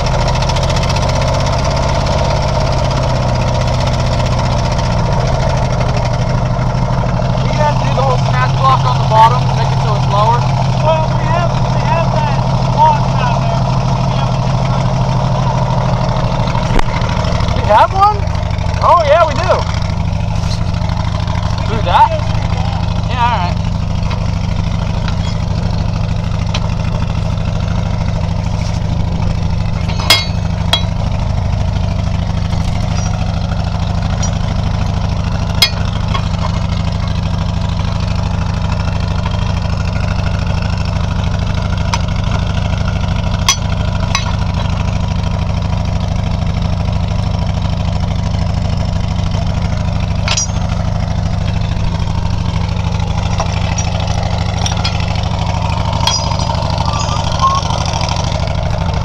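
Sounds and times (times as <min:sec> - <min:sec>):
heavy machine engine humming: 0:00.0 - 0:59.0
sharp metal clanks: 0:24.0 - 0:27.2, 0:29.5 - 0:31.3, 0:32.1 - 0:37.5, 0:43.2 - 0:45.0, 0:49.7 - 0:59.0.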